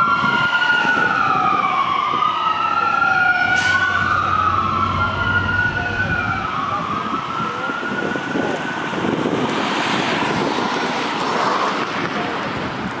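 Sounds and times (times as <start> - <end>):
fire engine wail siren: 0.0 - 12.6
steady rushing noise: 3.7 - 7.0.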